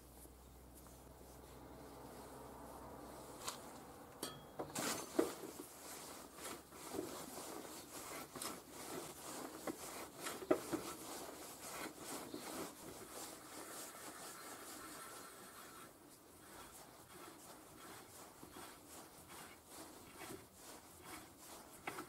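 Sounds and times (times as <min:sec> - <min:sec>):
metal scraping and rubbing: 0:04.7 - 0:22.0.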